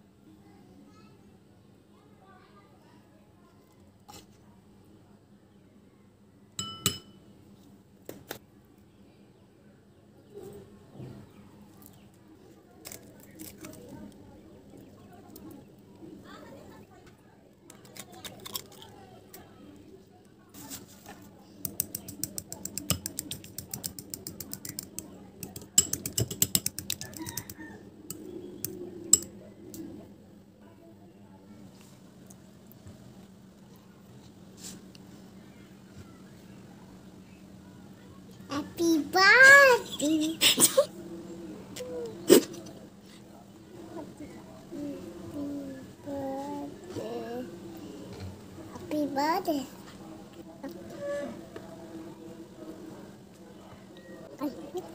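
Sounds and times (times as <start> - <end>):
plastic spoon tapping glass bowl: 6.6 - 7.2
fork beating eggs in glass bowl: 21.6 - 29.3.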